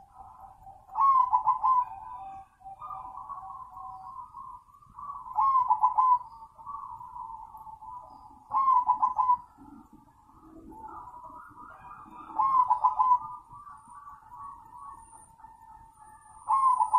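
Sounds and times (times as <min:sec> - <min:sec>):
dove cooing: 0:00.0 - 0:16.9
faint bird calls: 0:00.0 - 0:16.9.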